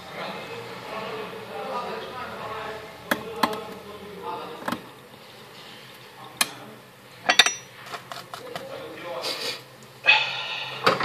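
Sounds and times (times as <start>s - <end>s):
tools clattering: 7.3s - 8.5s.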